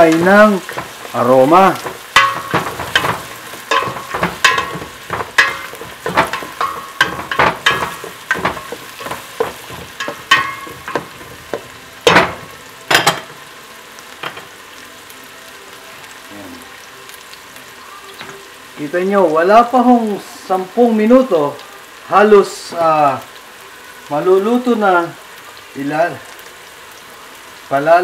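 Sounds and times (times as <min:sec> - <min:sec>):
food sizzling in oil: 0:00.0 - 0:28.0
spoon stirring and scraping in pot: 0:00.1 - 0:01.2, 0:01.8 - 0:13.3
spoon knocking against metal pot: 0:02.2 - 0:13.3.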